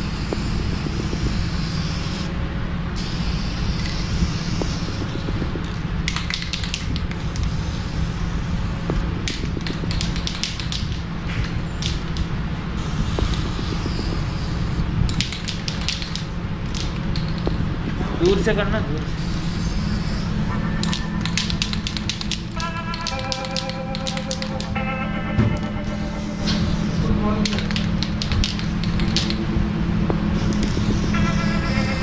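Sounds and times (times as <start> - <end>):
low hum: 0.0 - 32.0
aerosol spray hissing: 3.0 - 5.2, 19.2 - 20.4.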